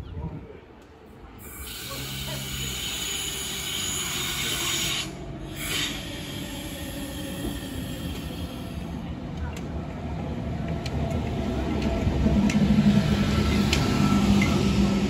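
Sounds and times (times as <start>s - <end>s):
low train rumble: 0.0s - 15.0s
train wheels squealing on rails: 1.4s - 9.1s, 12.3s - 15.0s.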